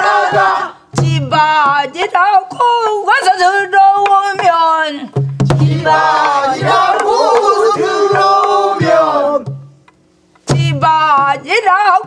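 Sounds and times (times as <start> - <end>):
women singing: 0.0 - 2.5, 5.6 - 9.5
barrel drum strokes: 5.2 - 11.4.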